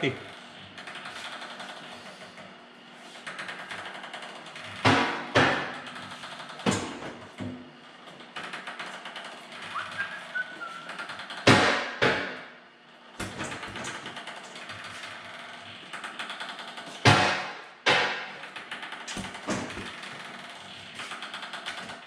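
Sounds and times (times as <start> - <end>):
loud knocks: 4.8 - 5.8, 11.4 - 12.4, 17.0 - 18.4.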